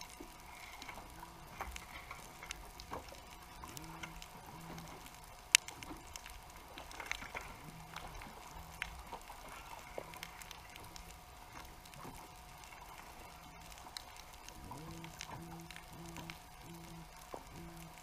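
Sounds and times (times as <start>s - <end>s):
faint steady hum: 0.0s - 18.0s
underwater reef clicks and crackles: 0.0s - 18.0s.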